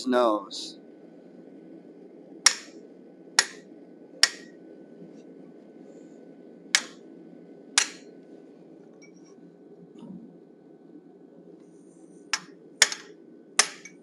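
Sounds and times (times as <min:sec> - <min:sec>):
hammer striking chisel on steel: 0:02.5 - 0:02.7, 0:04.2 - 0:04.5, 0:12.4 - 0:14.0.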